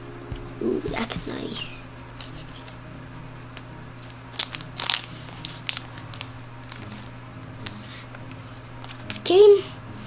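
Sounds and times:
steady low hum: 0.0 - 10.0
plastic crinkling and clicks: 3.6 - 9.3.

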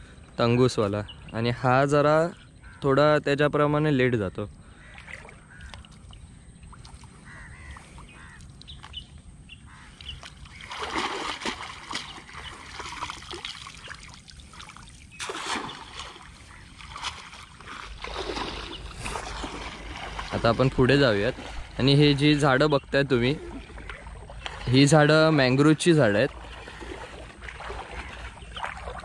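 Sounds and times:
water pouring off net: 10.5 - 20.6.

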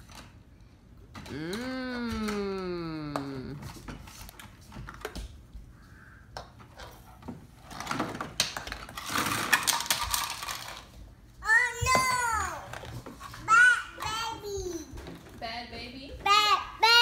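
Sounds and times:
toy dishes clattering: 7.9 - 10.9.

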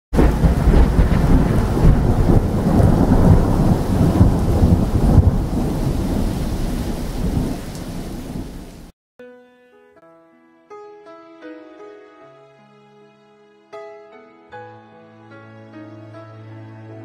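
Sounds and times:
heavy rain: 0.1 - 8.9
thunder rumbling: 0.1 - 8.9.

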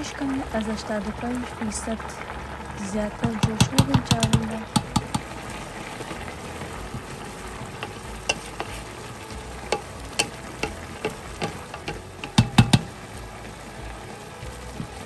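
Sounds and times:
rice sizzling: 0.0 - 15.0
wooden spoon knocking metal pot: 3.2 - 5.4, 7.8 - 8.8, 9.7 - 13.0.

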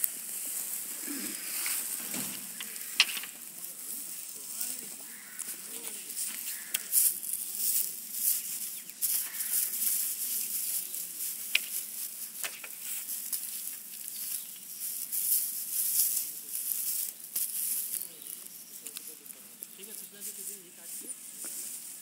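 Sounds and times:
dry grass rustling and crackling: 0.0 - 22.0.

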